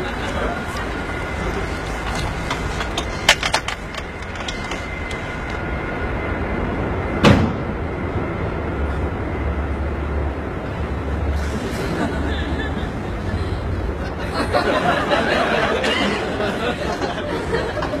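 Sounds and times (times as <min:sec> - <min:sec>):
loud clunk: 0:07.2 - 0:07.8.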